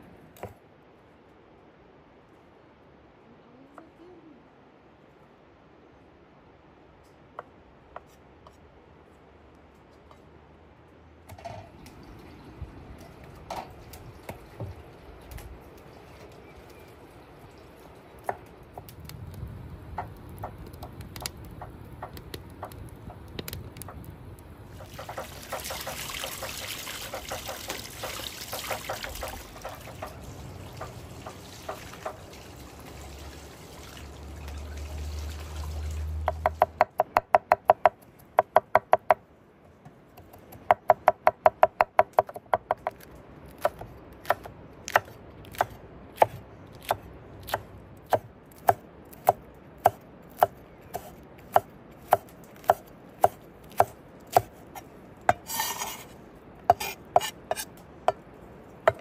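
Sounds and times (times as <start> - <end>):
wood fire crackling: 11.8 - 36.8.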